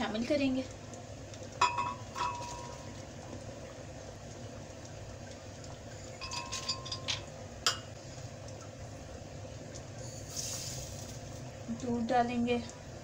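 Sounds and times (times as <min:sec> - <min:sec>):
sugar pouring with soft hiss: 0:00.0 - 0:13.0
almonds clinking against glass: 0:06.2 - 0:07.2.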